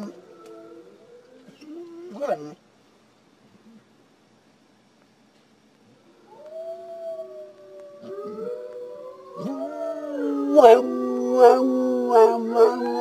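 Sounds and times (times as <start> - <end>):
dog howling: 0.0 - 2.6, 6.2 - 13.0.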